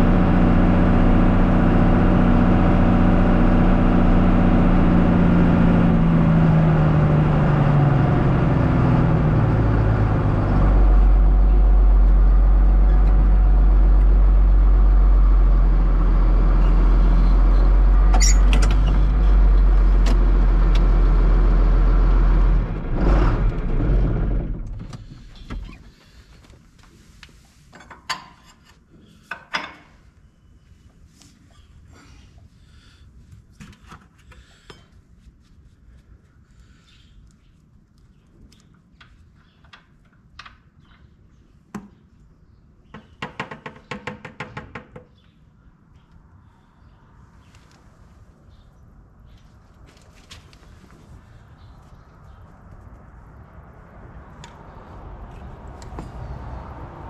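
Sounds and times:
tractor diesel engine: 0.0s - 27.1s, 53.8s - 57.0s.

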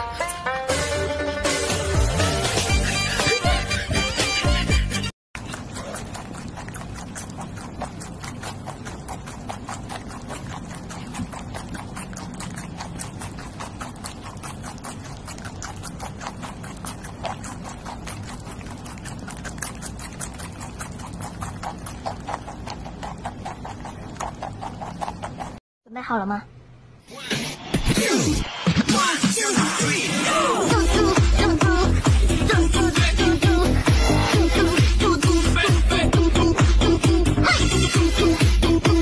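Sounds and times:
guinea pigs chewing herbs: 5.4s - 25.6s, 30.3s - 39.0s.

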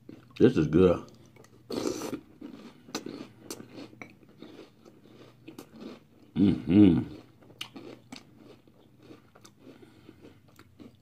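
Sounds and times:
chewing crunchy cereal: 0.0s - 11.0s
person humming approval: 6.4s - 7.1s.

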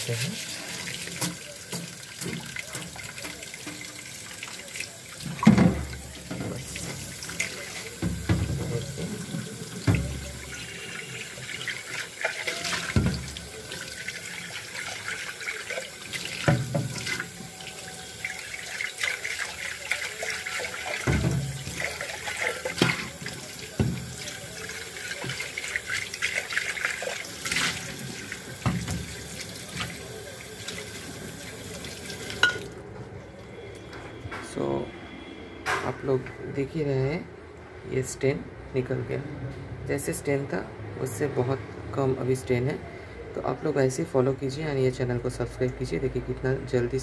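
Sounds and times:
tap water splashing in a pot: 0.0s - 32.8s
metal pot knocking a sink: 8.0s - 10.7s, 12.8s - 13.5s, 16.4s - 17.2s, 20.9s - 22.0s, 28.6s - 29.2s.

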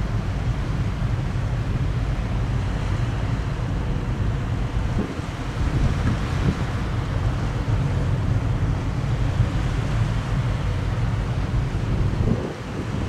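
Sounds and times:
choppy river water: 0.0s - 13.0s
wind buffeting microphone: 3.3s - 13.0s.

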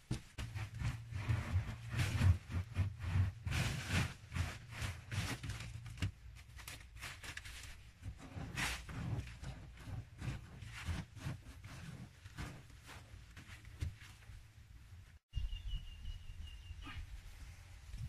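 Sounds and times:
dry earth scraped by hand: 0.4s - 5.8s, 8.1s - 13.6s.

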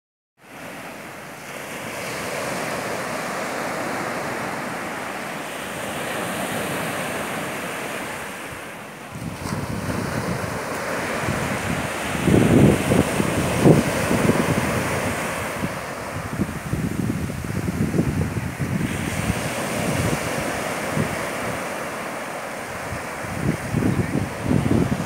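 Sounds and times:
waves washing up beach: 0.4s - 25.0s
wind buffeting microphone: 2.8s - 25.0s.

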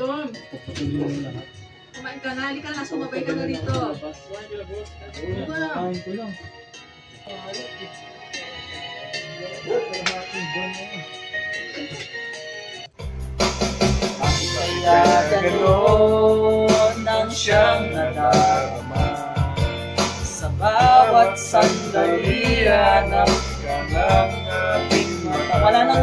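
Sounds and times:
backing track with guitar: 0.0s - 26.0s
man singing into microphone: 14.2s - 26.0s.

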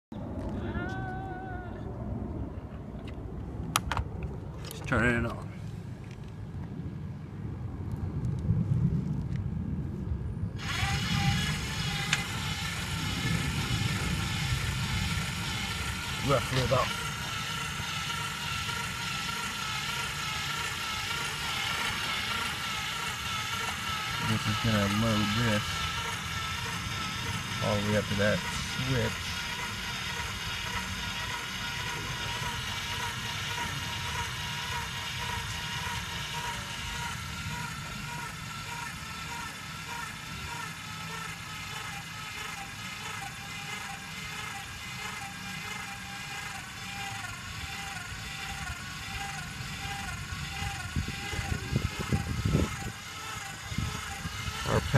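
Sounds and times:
low rumble: 0.1s - 4.8s, 5.6s - 16.2s
electric motor whining: 10.6s - 54.9s.

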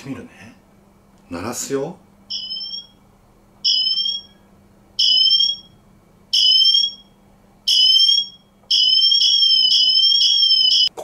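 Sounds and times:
warbling siren: 7.7s - 10.9s.

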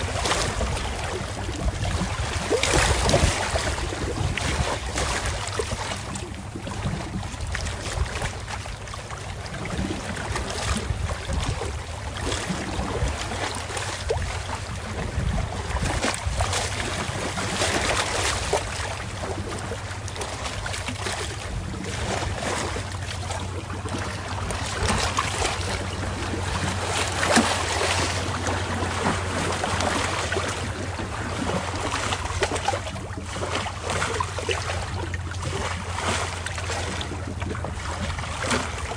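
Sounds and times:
wind buffeting the microphone: 0.0s - 8.5s, 9.4s - 19.7s
lapping water: 0.0s - 38.9s
steady low hum: 0.0s - 38.9s.

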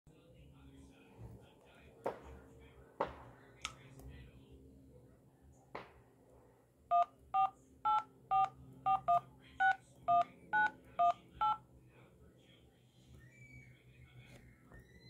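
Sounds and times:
phone dial pad beeps: 6.9s - 11.6s.

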